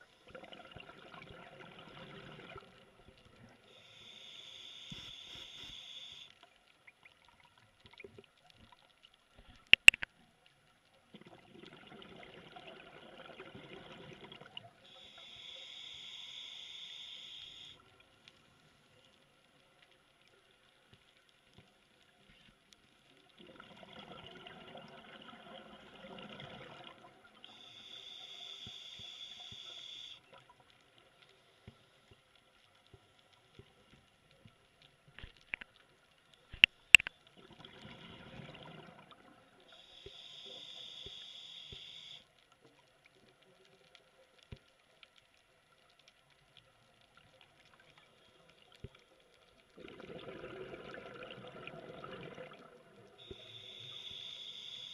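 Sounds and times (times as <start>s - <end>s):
exhaled bubbles underwater: 0.0s - 3.0s, 11.2s - 15.0s, 23.2s - 27.6s, 37.4s - 39.6s, 49.7s - 53.5s
regulator inhale hiss: 3.6s - 6.4s, 14.8s - 17.9s, 27.4s - 30.2s, 39.7s - 42.4s, 53.2s - 54.9s
sharp clicks: 9.6s - 10.1s.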